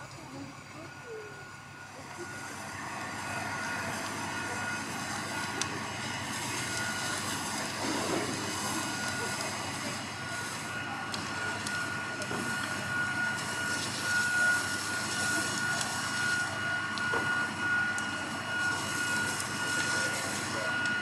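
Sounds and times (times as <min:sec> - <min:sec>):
engines and pumps droning: 0:00.0 - 0:21.0
high whine: 0:00.0 - 0:21.0.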